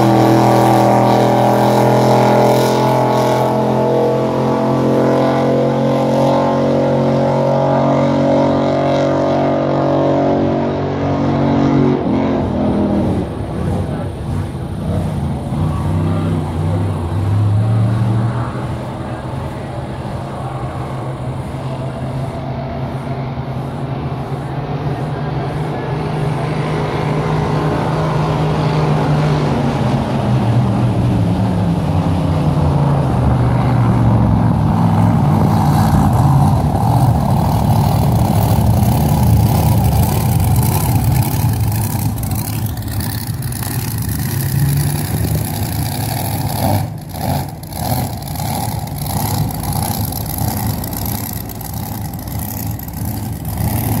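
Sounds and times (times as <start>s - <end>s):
race boat engine running hard: 0.0s - 54.0s.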